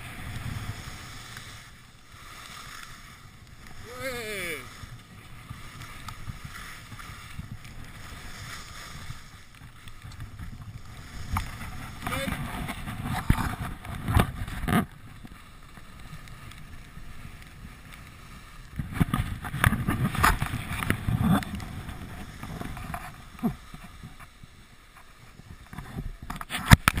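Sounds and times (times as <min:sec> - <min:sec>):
skis sliding on snow: 0:00.0 - 0:27.0
wind buffeting microphone: 0:03.2 - 0:15.4, 0:18.6 - 0:24.2.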